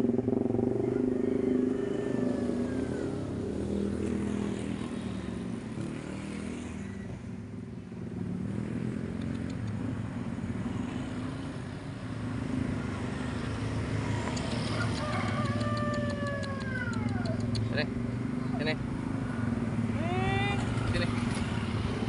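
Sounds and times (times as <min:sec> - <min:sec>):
vehicle engine running: 0:00.0 - 0:05.2.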